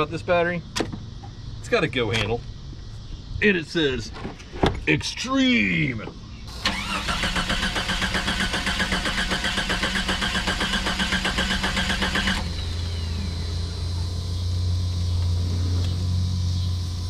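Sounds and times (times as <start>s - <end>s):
steady low hum: 0.0s - 6.7s, 10.9s - 17.0s
starter cranking engine: 6.5s - 13.0s
short falling whine: 12.4s - 16.8s.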